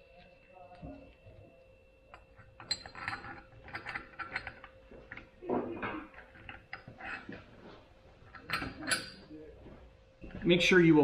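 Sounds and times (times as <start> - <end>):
small metal gears clinking: 2.1 - 4.8
metal scraping on metal: 2.2 - 4.8, 5.5 - 7.5.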